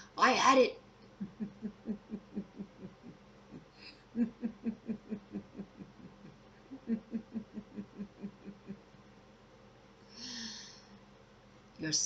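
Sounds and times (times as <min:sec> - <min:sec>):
woman laughing: 0:01.2 - 0:08.8.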